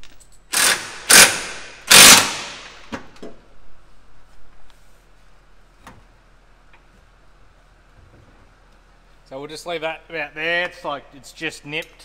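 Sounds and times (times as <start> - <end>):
impact wrench bursts: 0.5 - 2.9.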